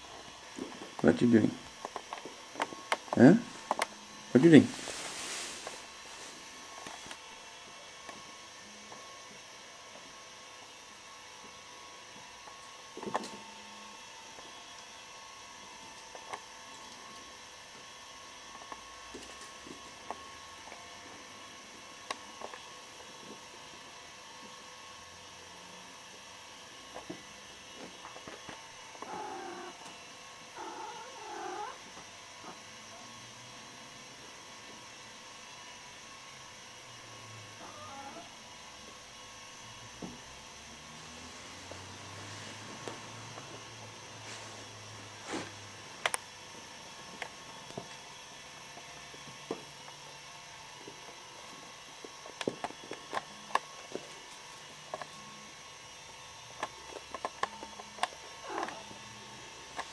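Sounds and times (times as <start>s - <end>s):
cat calling: 29.0s - 29.8s, 30.6s - 31.8s, 37.6s - 38.3s.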